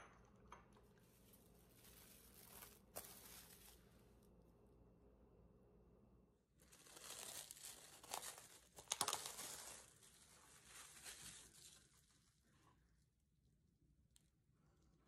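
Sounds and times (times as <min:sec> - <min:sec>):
plastic cling wrap crinkling: 0:01.0 - 0:04.1, 0:06.6 - 0:12.6.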